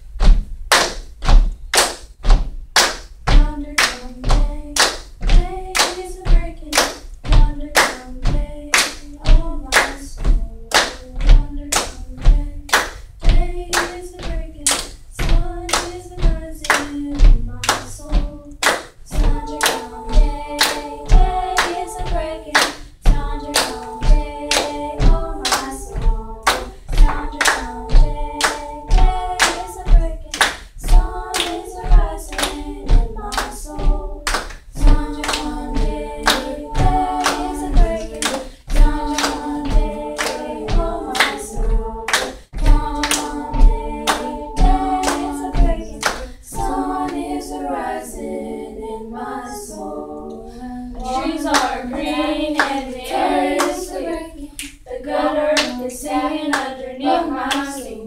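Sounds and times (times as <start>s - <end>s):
hand claps: 0.2s - 47.3s, 51.0s - 53.0s
girls singing in parts: 2.8s - 58.0s.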